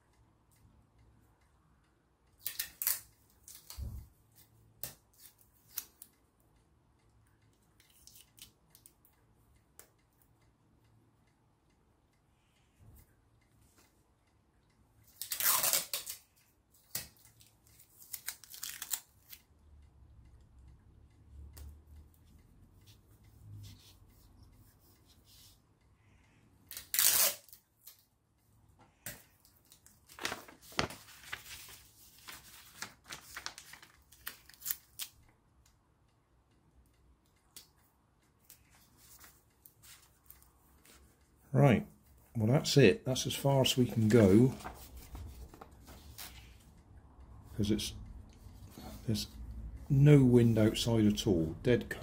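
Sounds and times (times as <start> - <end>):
sticky tape ripping: 15.2 - 16.2, 26.7 - 28.0
paper handled: 29.1 - 35.1, 43.6 - 46.6.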